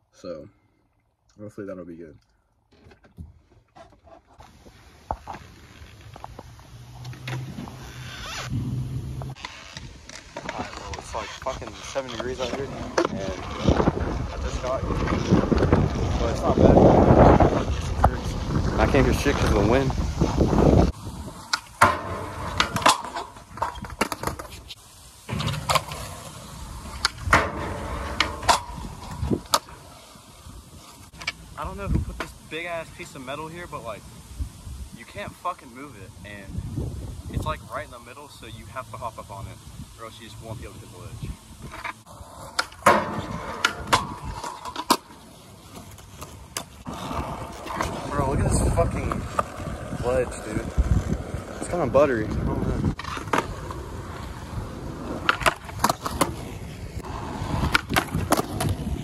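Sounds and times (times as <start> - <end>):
skateboard wheels rolling on concrete: 2.7 - 59.0
skateboard clacks: 42.5 - 48.1, 52.9 - 59.0.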